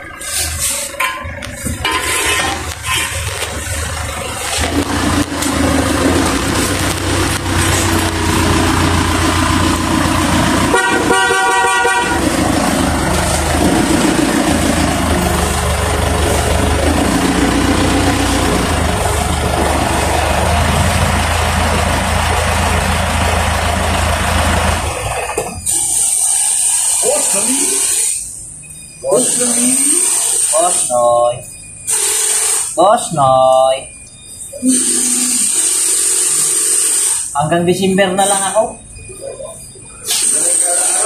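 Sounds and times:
motorcycle engine running: 0:02.3 - 0:25.6
horn tooting: 0:09.7 - 0:13.8.

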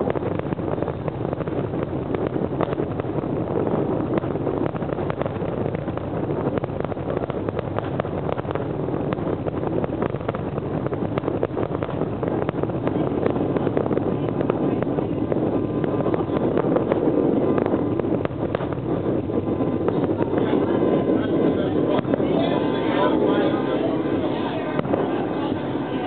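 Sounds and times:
distant fireworks popping: 0:00.0 - 0:26.0
steady rumble: 0:00.0 - 0:26.0.

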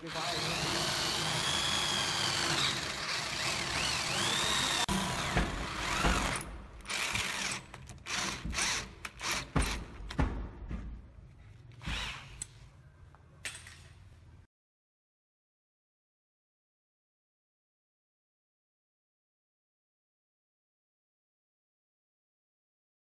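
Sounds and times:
electric drill boring into wood: 0:00.0 - 0:09.7, 0:11.8 - 0:12.4.

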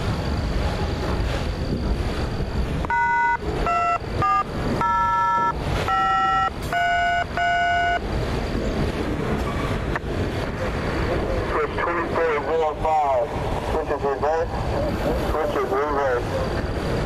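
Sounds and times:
freight train rumbling past: 0:00.0 - 0:17.0
short beeping tones: 0:02.8 - 0:08.1.

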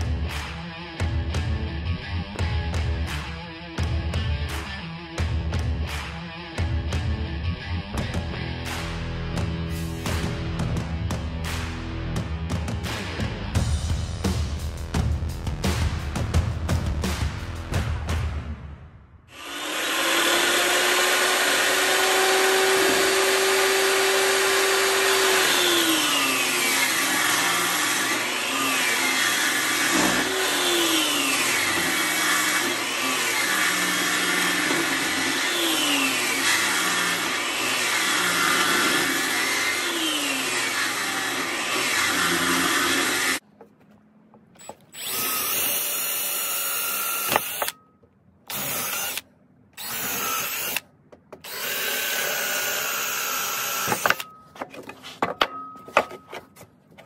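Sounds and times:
table saw cutting wood: 0:19.3 - 0:43.4, 0:44.6 - 0:47.8, 0:48.5 - 0:49.2, 0:49.8 - 0:50.8, 0:51.4 - 0:54.3
cordless drill boring into wood: 0:19.4 - 0:43.4, 0:44.6 - 0:47.8, 0:48.5 - 0:49.2, 0:49.8 - 0:50.8, 0:51.4 - 0:54.3.

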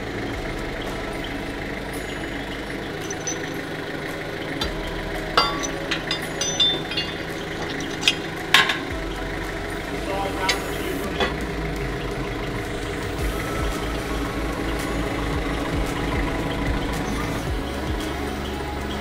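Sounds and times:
background hum: 0:00.0 - 0:19.0
metal tools clinking on bolts: 0:02.0 - 0:09.3, 0:09.9 - 0:13.2.

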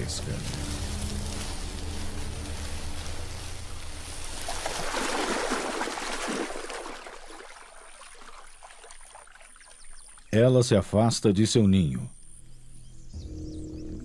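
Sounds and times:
water sloshing and trickling: 0:00.0 - 0:10.4.

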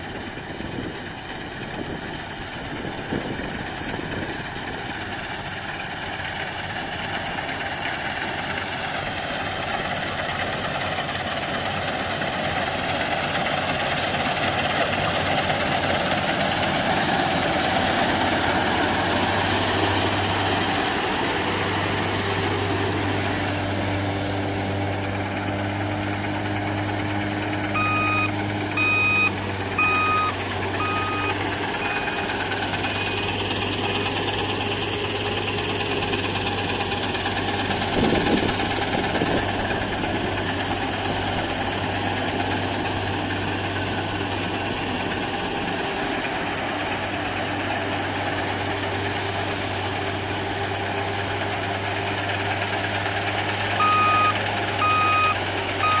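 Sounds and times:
combine harvester engine hum: 0:00.0 - 0:56.0
warning beeper: 0:27.8 - 0:32.3, 0:53.8 - 0:56.0.

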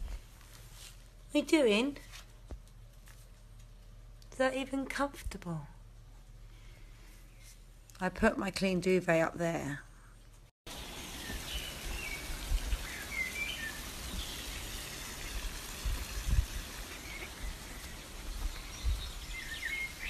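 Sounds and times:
small birds chirping: 0:10.7 - 0:20.0
steady background hiss: 0:10.7 - 0:20.0.

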